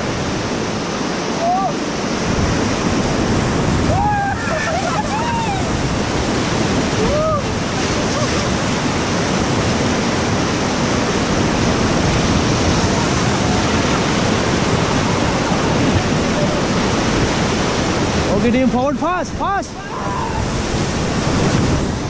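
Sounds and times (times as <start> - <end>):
whitewater rapids rushing: 0.0 - 22.0.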